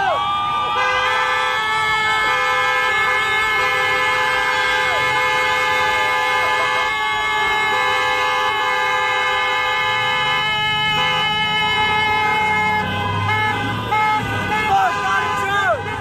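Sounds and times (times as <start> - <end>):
people shouting: 0.0 - 7.7, 11.0 - 16.0.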